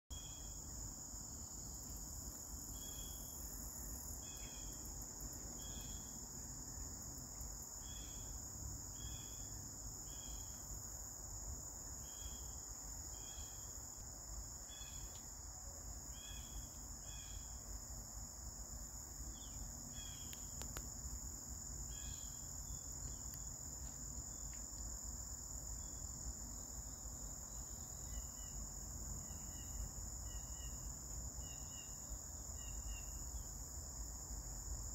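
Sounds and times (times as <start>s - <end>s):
crickets chirping: 0.1s - 34.9s.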